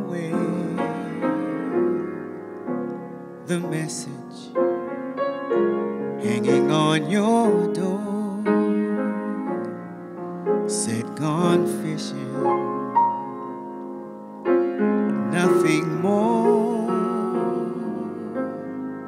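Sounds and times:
man singing jazz vocal: 0.0s - 2.0s, 3.4s - 4.6s, 6.2s - 9.8s, 10.7s - 12.8s, 15.2s - 18.7s
piano ballad chords: 0.0s - 19.0s.

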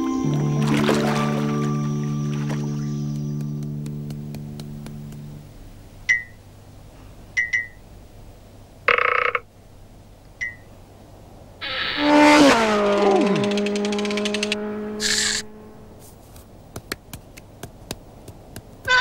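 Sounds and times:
buzzing rattle with falling whistle: 11.6s - 15.5s.

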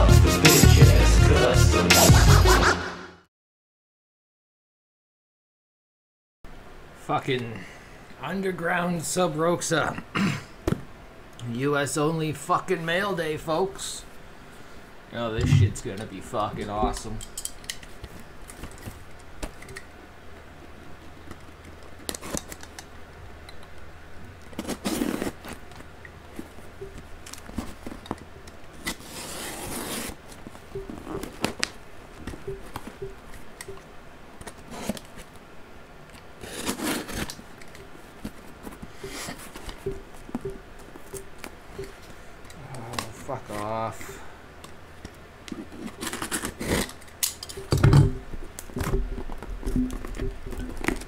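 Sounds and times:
packing tape tearing: 21.4s - 22.9s, 24.4s - 25.9s, 27.2s - 31.8s, 34.4s - 35.3s, 36.1s - 38.4s, 45.5s - 47.6s
cardboard scraping and rustling: 24.5s - 26.7s, 27.4s - 31.8s, 36.4s - 39.8s.

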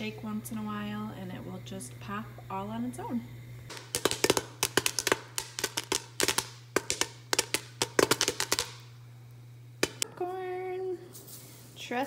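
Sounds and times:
popcorn popping in a pot: 3.7s - 9.0s, 9.8s - 10.1s.

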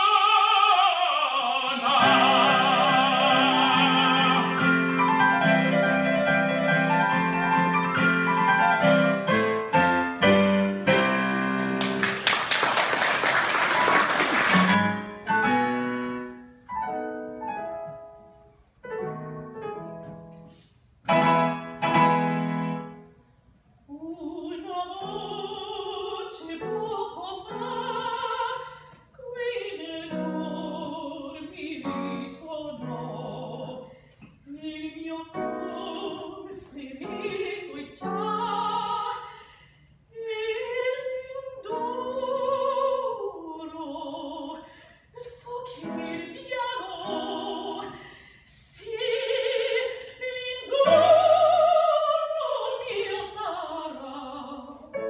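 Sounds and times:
man singing operatically: 0.0s - 5.3s
woman singing operatically: 0.0s - 5.8s, 23.9s - 33.9s, 34.5s - 39.3s, 40.2s - 55.0s
applause: 11.6s - 14.8s
keyboard accompaniment: 14.4s - 23.2s.

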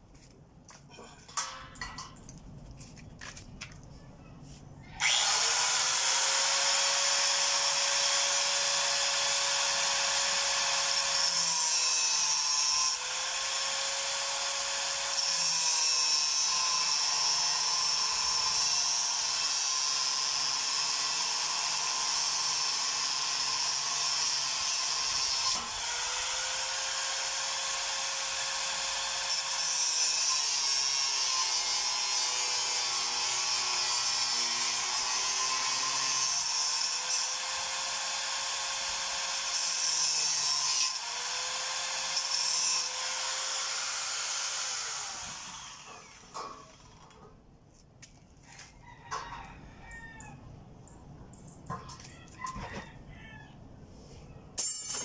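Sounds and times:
angle grinder grinding steel: 28.6s - 47.2s.

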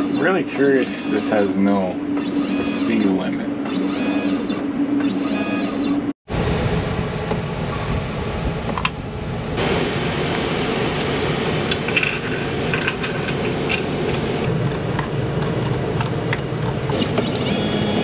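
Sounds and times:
steady rushing noise with hum: 5.9s - 16.9s.

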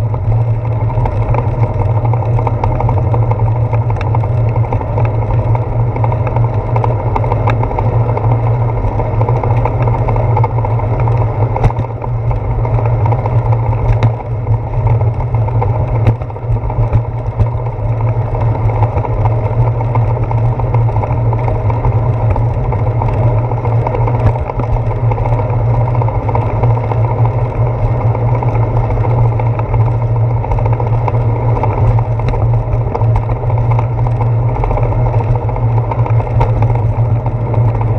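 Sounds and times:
bicycle rolling on wet pavement: 0.0s - 37.9s
wind: 0.0s - 37.9s.

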